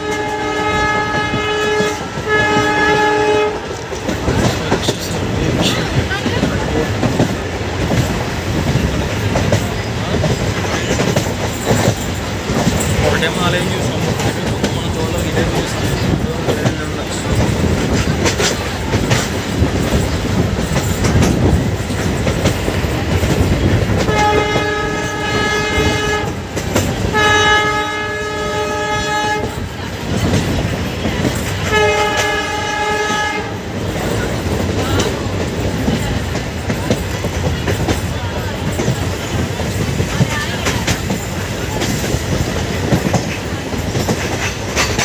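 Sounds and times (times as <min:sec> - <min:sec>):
locomotive horn blasts: 0:00.0 - 0:03.8, 0:24.0 - 0:29.7, 0:31.6 - 0:33.7
train wheels clattering on rails: 0:00.0 - 0:45.0.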